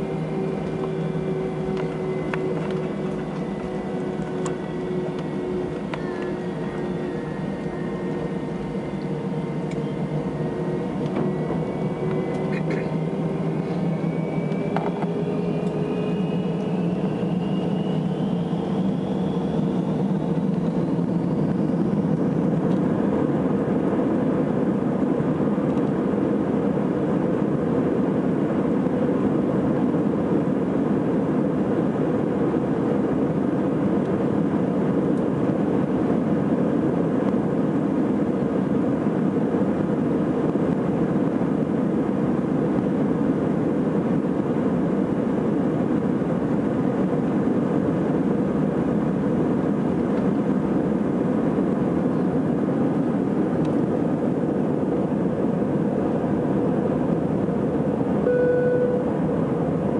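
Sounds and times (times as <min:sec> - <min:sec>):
runway rumble: 0:00.0 - 0:28.8
jet engines spooling up: 0:00.0 - 0:59.9.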